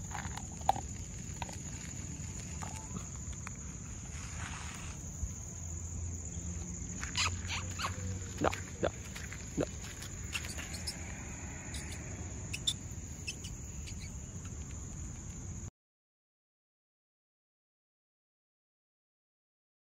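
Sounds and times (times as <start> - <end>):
high-pitched insect drone: 0.0 - 14.9
short sharp chirps and clicks: 11.8 - 14.8.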